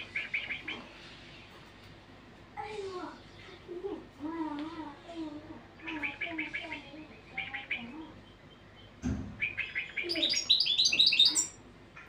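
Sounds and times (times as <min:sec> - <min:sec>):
goldfinch twittering song: 0:05.9 - 0:11.6
soft thump: 0:09.0 - 0:09.4.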